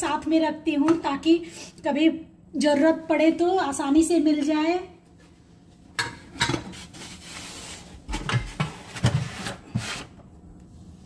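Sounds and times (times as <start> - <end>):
box scraping on shelf: 7.0 - 10.2.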